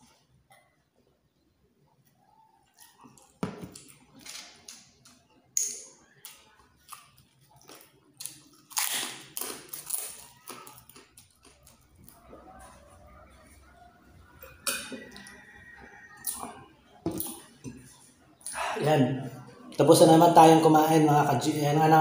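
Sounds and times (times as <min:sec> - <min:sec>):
chewing: 0:02.0 - 0:18.6.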